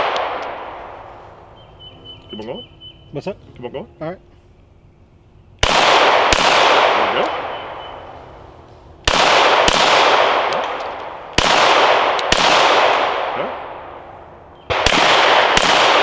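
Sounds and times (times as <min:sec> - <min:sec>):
pistol shots echoing: 0:00.0 - 0:01.9, 0:05.6 - 0:08.3, 0:09.0 - 0:16.0.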